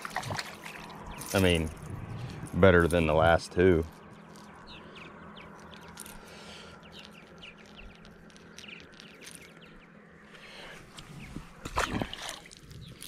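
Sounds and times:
faint clicks and rustles: 0.0s - 10.0s
small birds chirping: 0.0s - 13.0s.

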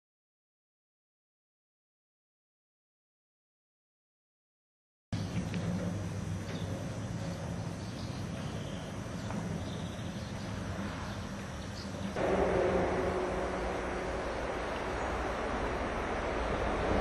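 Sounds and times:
outdoor background noise: 5.1s - 17.0s
low hum: 12.1s - 17.0s.

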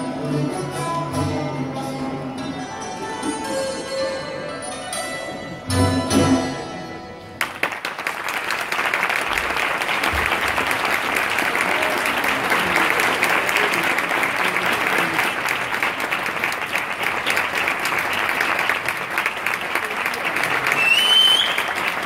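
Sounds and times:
audience applauding: 7.4s - 22.0s.

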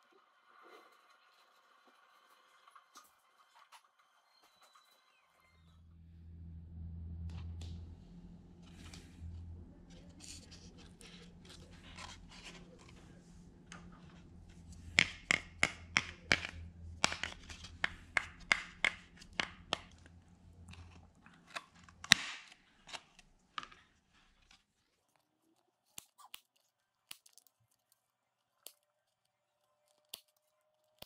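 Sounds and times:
paper mache snapping: 13.7s - 24.6s, 25.9s - 27.9s
crunching clicks on paper mache: 15.0s - 31.0s.

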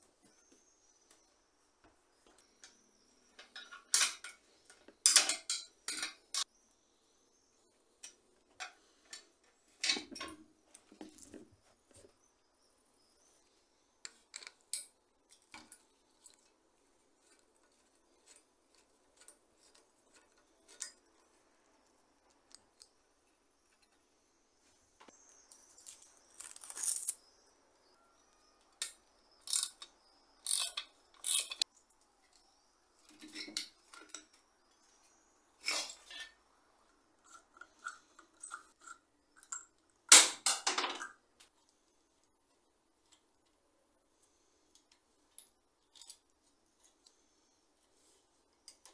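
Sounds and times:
tools clicking and clinking: 3.4s - 6.5s, 28.7s - 34.4s.

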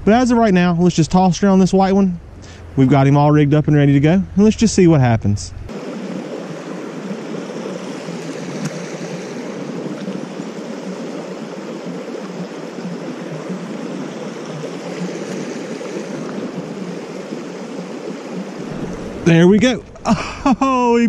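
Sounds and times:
creek water rushing over riffle: 5.7s - 21.0s.

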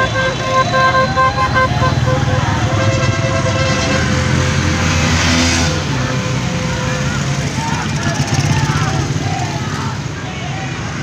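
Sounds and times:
vehicle horn tooting: 0.0s - 4.8s
small motorcycle engines: 0.0s - 11.0s.

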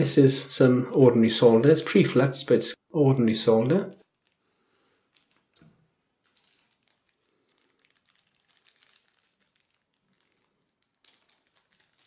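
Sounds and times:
plastic bag crinkling: 3.9s - 12.0s.

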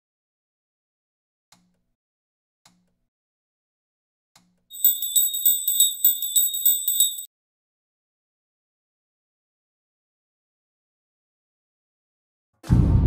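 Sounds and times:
high-pitched bell jingling: 4.7s - 7.3s.

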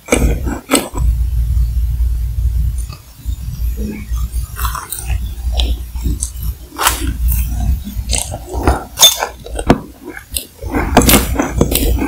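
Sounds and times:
chewing with soft crunches: 3.9s - 12.0s
biting into macaron: 4.4s - 12.0s.

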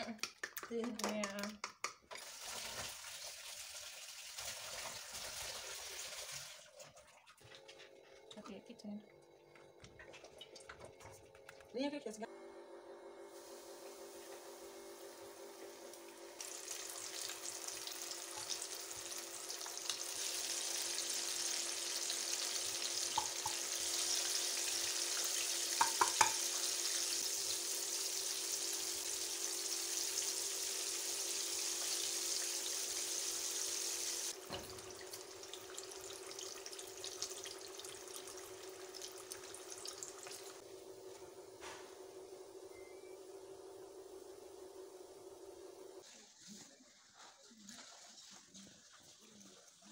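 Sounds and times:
chicken wings sizzling in hot oil: 13.2s - 41.5s
faint steady hum: 34.0s - 46.0s.

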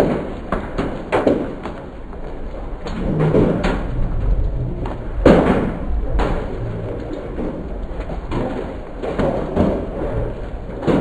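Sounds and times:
steady rain: 0.0s - 11.0s
low thunder rumble: 1.9s - 11.0s
thuds: 2.6s - 11.0s.

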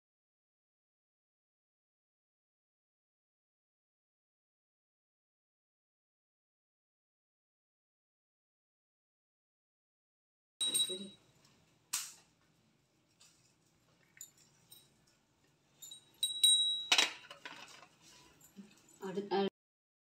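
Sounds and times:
small metal items clinking: 10.6s - 12.3s, 13.1s - 19.1s.

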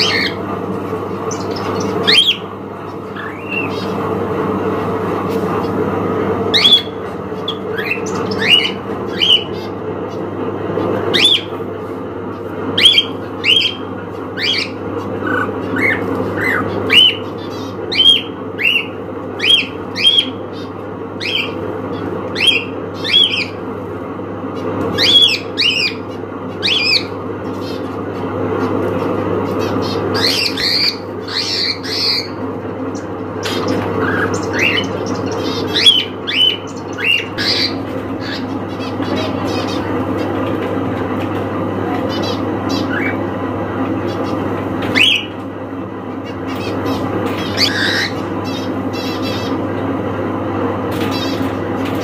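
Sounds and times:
cockatiel squawking: 1.3s - 2.4s, 29.6s - 32.4s, 33.4s - 39.9s, 46.5s - 49.6s
high bird chirps: 1.3s - 4.0s, 6.5s - 9.8s, 29.6s - 39.9s.

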